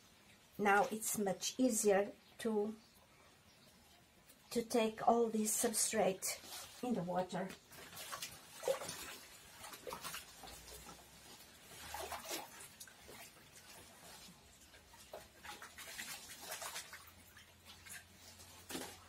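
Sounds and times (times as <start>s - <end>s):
water sloshing in a bucket: 5.4s - 19.0s.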